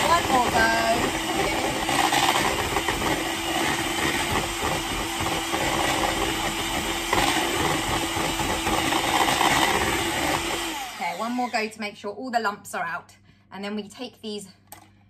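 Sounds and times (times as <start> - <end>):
whisk clatter: 0.0 - 10.7
electric hand whisk running: 0.0 - 11.7.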